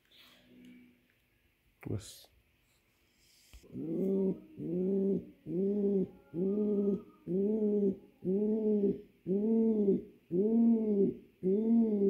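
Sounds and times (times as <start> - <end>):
pigeon cooing: 3.6 - 12.0.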